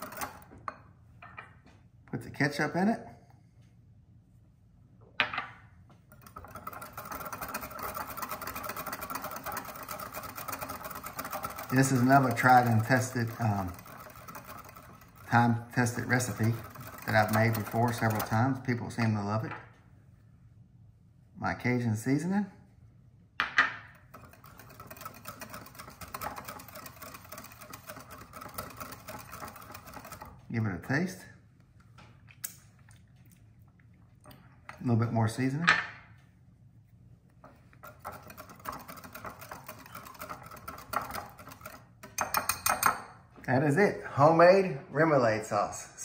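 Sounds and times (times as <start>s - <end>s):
whisk rattling in glass bowl: 0.0s - 0.5s, 6.1s - 19.1s, 24.0s - 30.9s, 37.5s - 43.1s.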